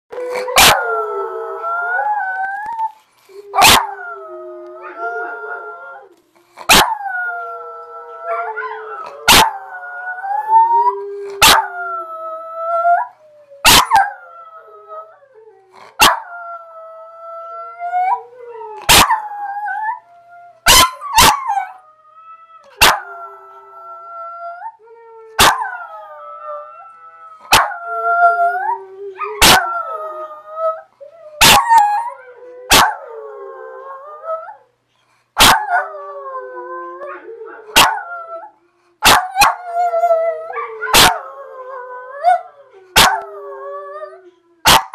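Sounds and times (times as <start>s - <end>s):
dogs howling: 0.1s - 6.1s, 6.7s - 15.2s, 25.4s - 30.8s, 31.4s - 34.6s, 35.4s - 44.2s.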